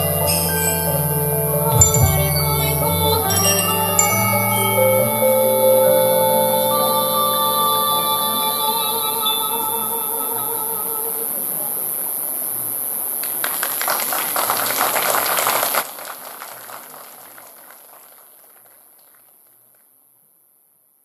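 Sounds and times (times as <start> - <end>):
handbell notes ringing: 0.0 - 5.7
audience applause: 13.2 - 19.4.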